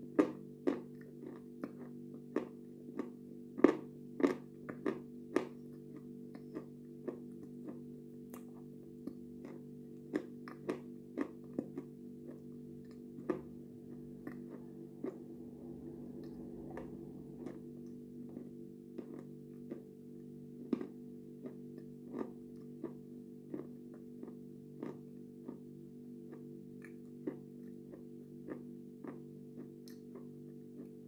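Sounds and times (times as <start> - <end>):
low hum: 11.4 - 24.3.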